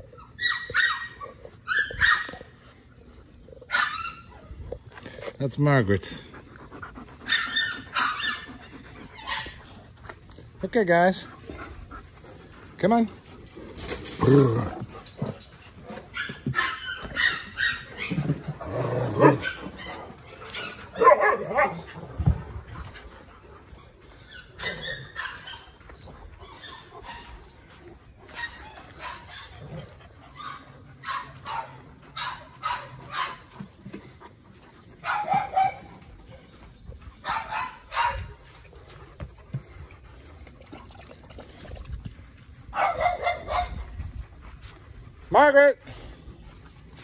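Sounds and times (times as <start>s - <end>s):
dogs barking: 0.4s - 2.6s, 3.6s - 4.3s, 6.6s - 9.9s, 14.1s - 22.4s, 24.2s - 34.2s, 34.9s - 38.6s, 42.7s - 45.5s.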